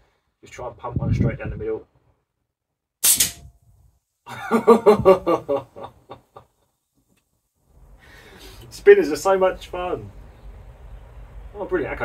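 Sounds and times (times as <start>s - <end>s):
air rifle shot: 3.0s - 3.5s
metal target clanking and ringing: 3.0s - 3.5s.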